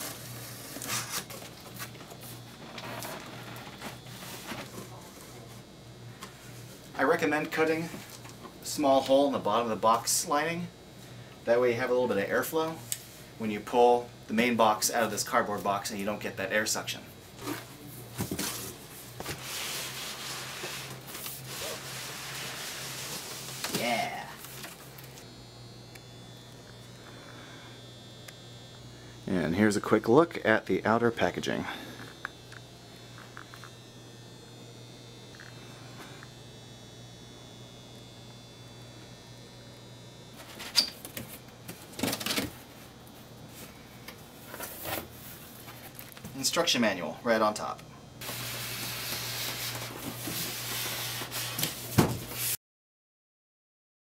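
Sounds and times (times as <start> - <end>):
low room hum: 0.0 - 52.5
cardboard scraping cardboard: 17.4 - 23.8.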